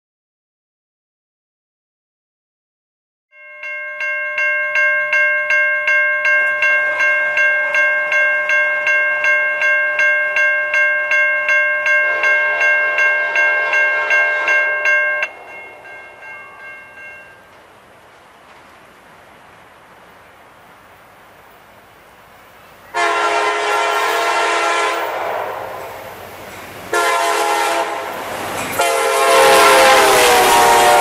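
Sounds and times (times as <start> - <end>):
crossing warning bell ringing: 3.3 - 17.6, 22.8 - 31.0.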